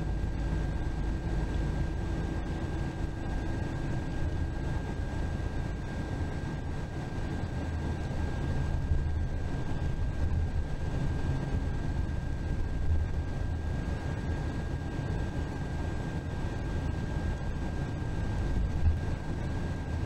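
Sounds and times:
bus road and engine rumble: 0:00.0 - 0:20.0
faint thin whine: 0:00.0 - 0:20.0.

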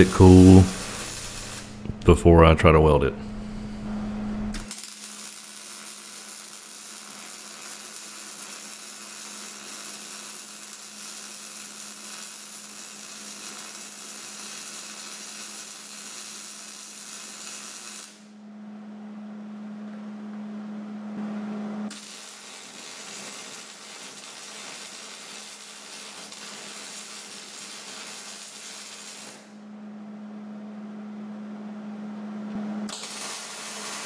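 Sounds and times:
welding arc crackling hiss: 0:00.0 - 0:02.1, 0:04.5 - 0:18.3, 0:21.9 - 0:29.6, 0:32.9 - 0:34.0
steady low hum: 0:00.0 - 0:04.7, 0:18.3 - 0:21.9, 0:29.5 - 0:32.9.

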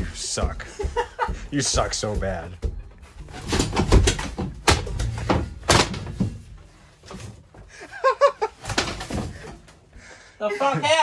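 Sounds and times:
metal seat frame thudding and clanking: 0:00.0 - 0:07.7.

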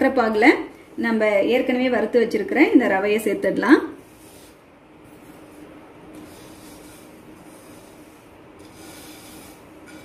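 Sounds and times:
spatula scraping grains in pan: 0:06.2 - 0:10.0.

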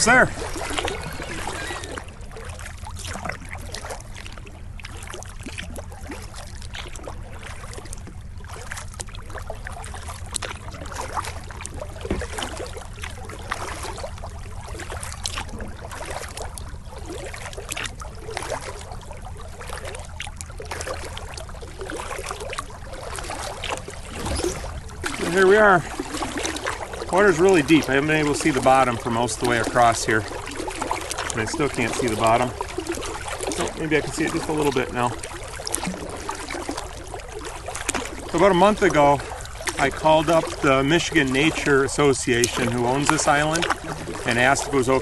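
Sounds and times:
paddle splashing water: 0:00.0 - 0:45.0
low rumble: 0:23.8 - 0:26.4.

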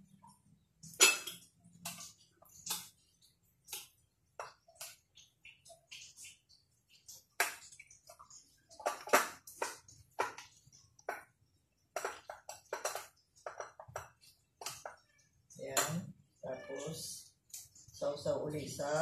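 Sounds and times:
light clicks and scrapes on plates: 0:00.3 - 0:16.2.

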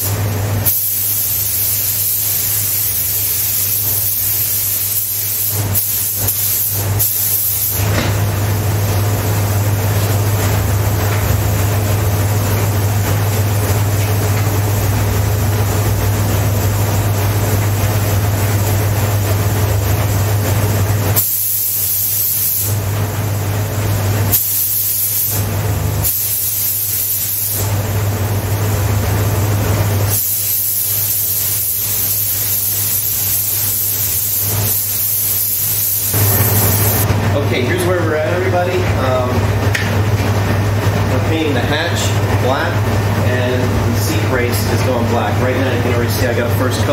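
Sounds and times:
paint spray gun hissing: 0:00.0 - 0:07.9, 0:21.2 - 0:22.8, 0:24.3 - 0:27.8, 0:30.0 - 0:37.0
steady low hum: 0:00.0 - 0:46.9.

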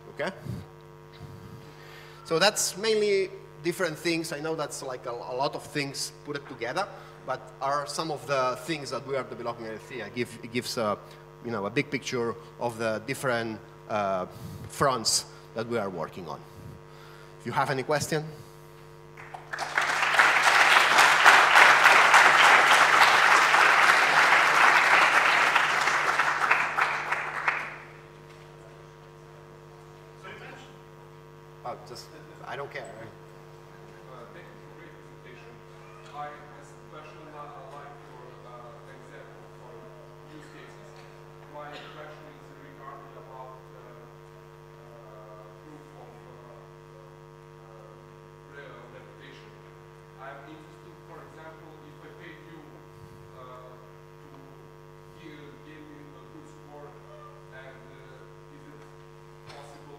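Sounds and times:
electrical mains hum: 0:00.0 - 0:59.9
audience applauding: 0:19.2 - 0:28.1.

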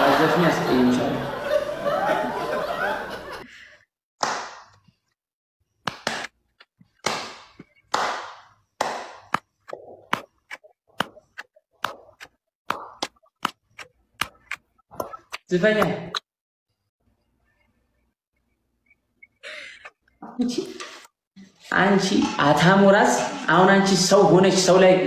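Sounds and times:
hand claps: 0:04.2 - 0:04.8, 0:05.8 - 0:06.4, 0:07.0 - 0:09.5.

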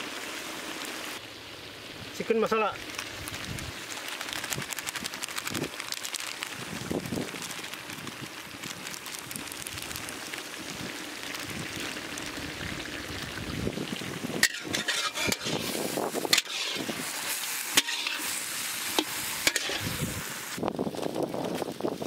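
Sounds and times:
food frying and sizzling: 0:00.0 - 0:22.0
metal spatula scraping a pan: 0:14.4 - 0:20.0.

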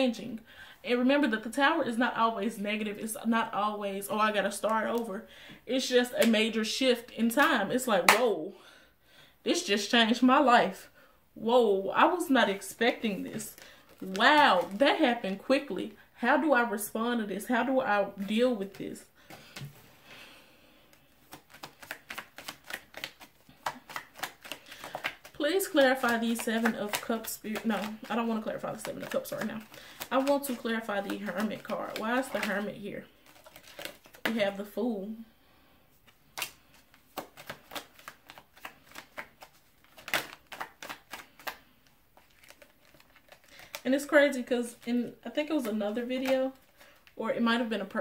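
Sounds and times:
cards being shuffled: 0:12.8 - 0:15.2, 0:18.2 - 0:19.8, 0:20.9 - 0:34.6, 0:36.0 - 0:47.2.

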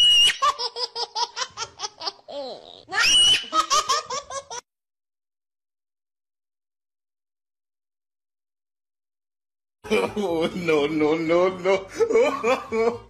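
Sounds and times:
shrill rapid laughter: 0:02.9 - 0:04.6.

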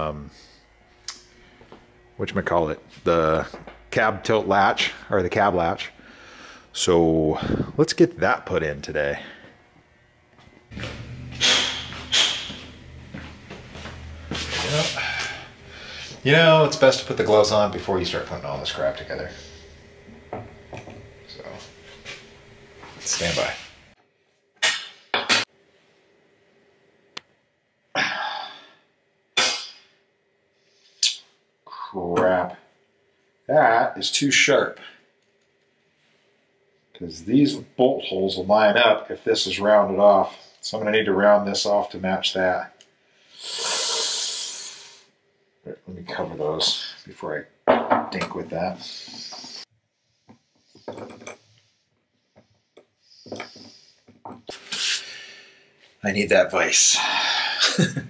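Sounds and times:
knocks and clinks on workbench: 0:47.7 - 0:48.4, 0:50.8 - 0:51.4.

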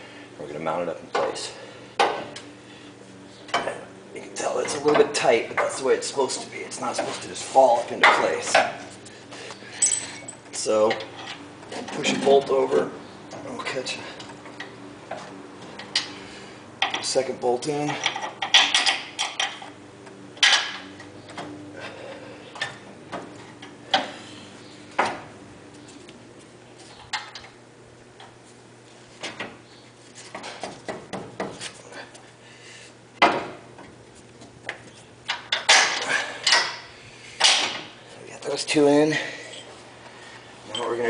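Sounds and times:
metal bolts clinking and knocking: 0:17.8 - 0:19.7.

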